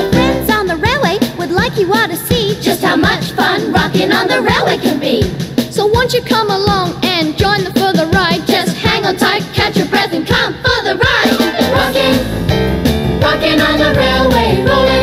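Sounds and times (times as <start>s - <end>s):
background music with beat: 0.0s - 15.0s.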